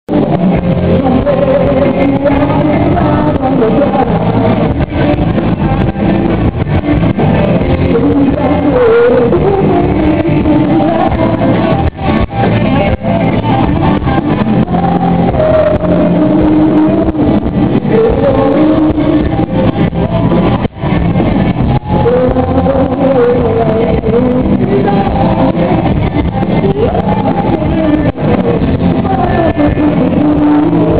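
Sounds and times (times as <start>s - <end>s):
man singing: 0.1s - 5.9s, 7.5s - 20.4s, 21.7s - 30.9s
live band playing: 0.1s - 30.9s.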